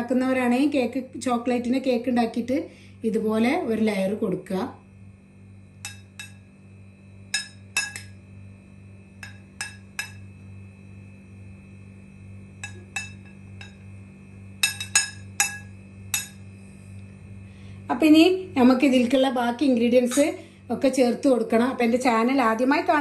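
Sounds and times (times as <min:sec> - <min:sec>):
metal spoon clinking on glass dish: 0:05.9 - 0:06.4, 0:07.4 - 0:08.2, 0:09.2 - 0:10.3, 0:12.6 - 0:13.8, 0:14.6 - 0:16.4.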